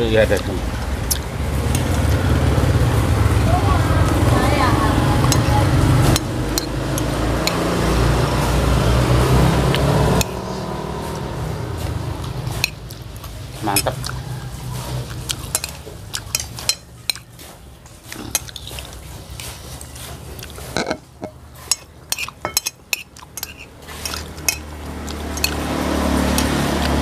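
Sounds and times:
spoons clinking on plates: 5.3s - 7.6s, 12.2s - 14.1s, 15.0s - 17.6s, 18.3s - 26.9s.

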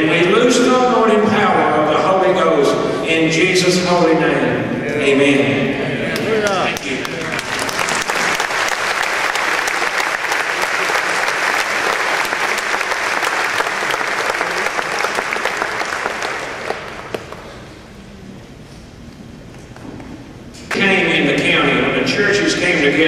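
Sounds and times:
audience applauding: 6.2s - 17.6s.

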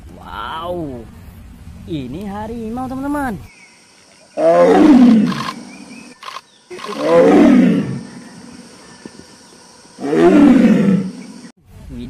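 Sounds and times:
tiger roaring: 4.3s - 5.9s, 6.7s - 8.7s, 10.0s - 11.4s.

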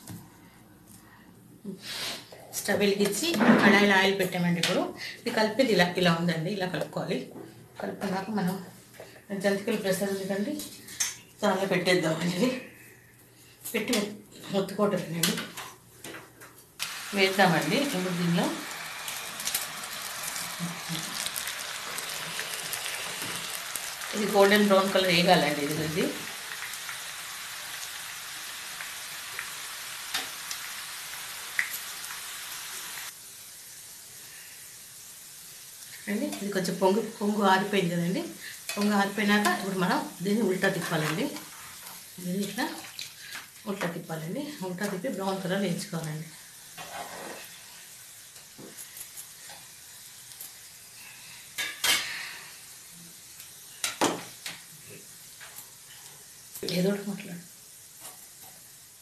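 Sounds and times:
food deep-frying in hot oil: 16.8s - 59.0s.

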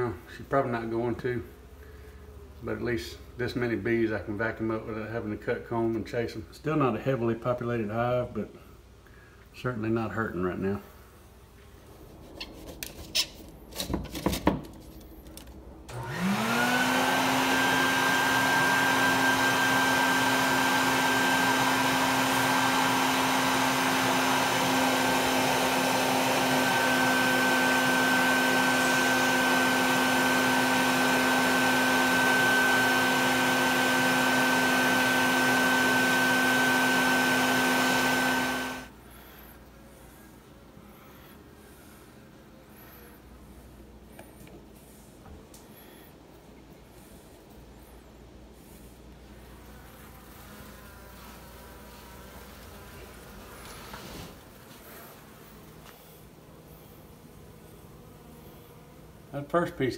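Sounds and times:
vacuum motor whine: 15.9s - 39.0s.

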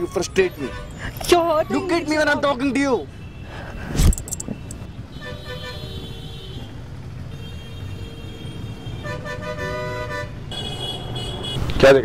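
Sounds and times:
vehicle horns honking: 3.1s - 11.8s.

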